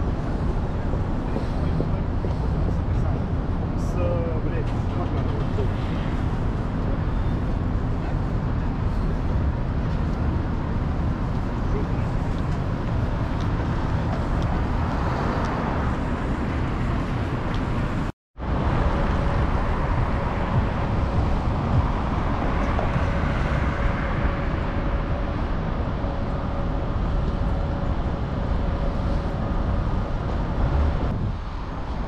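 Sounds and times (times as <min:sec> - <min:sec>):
rumble of cars: 0:00.0 - 0:32.0.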